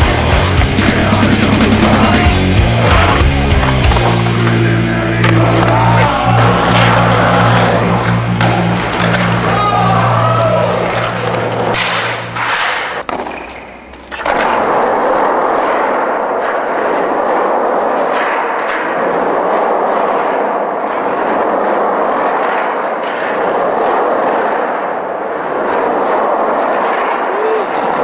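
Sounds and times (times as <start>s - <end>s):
music: 0.0s - 12.8s
skateboard wheels rolling on concrete: 0.0s - 28.0s.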